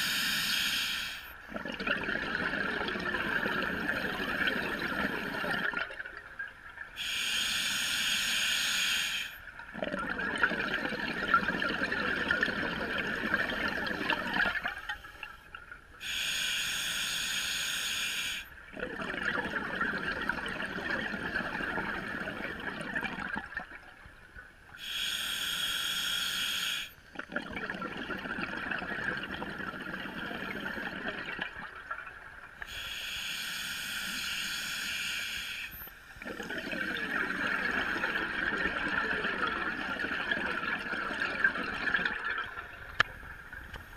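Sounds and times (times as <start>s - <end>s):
regulator inhale hiss: 0.0s - 1.4s, 7.0s - 9.4s, 16.0s - 18.6s, 24.8s - 27.1s, 32.6s - 36.3s
exhaled bubbles streaming: 1.5s - 6.8s, 9.6s - 15.7s, 18.7s - 24.3s, 27.1s - 32.6s, 36.2s - 43.9s.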